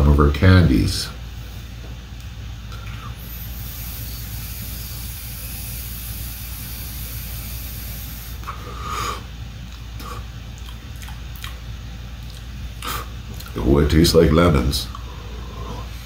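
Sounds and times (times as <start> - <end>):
airy inhalation hiss: 2.8 - 9.3.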